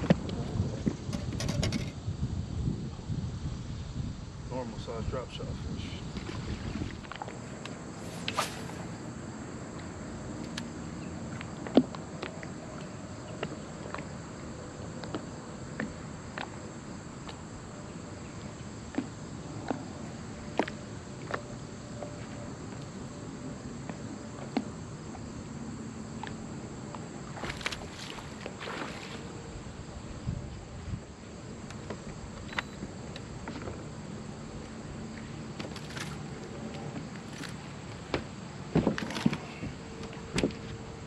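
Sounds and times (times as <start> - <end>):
steady hiss: 7.4 - 9.6
short rustle: 7.9 - 9.1
clicks and knocks of tackle: 35.6 - 36.3, 38.8 - 40.8.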